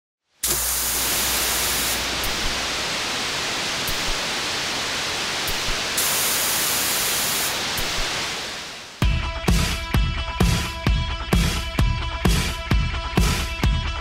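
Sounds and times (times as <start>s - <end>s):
steady static hiss: 0.3s - 9.0s.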